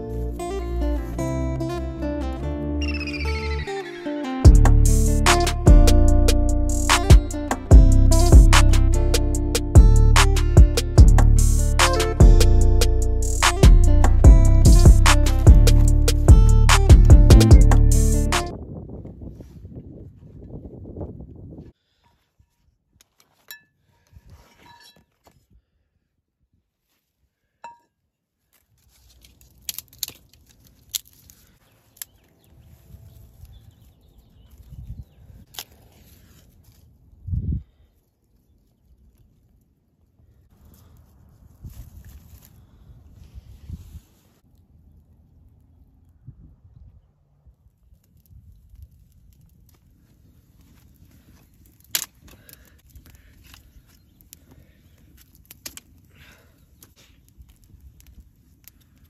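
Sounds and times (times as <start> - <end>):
low steady rumble: 4.5 - 18.2
dry grass and twigs rustling: 11.3 - 16.8, 28.4 - 59.0
knife carving a stick: 28.5 - 32.1
twigs snapping: 28.5 - 32.3, 35.5 - 36.8, 48.0 - 59.0.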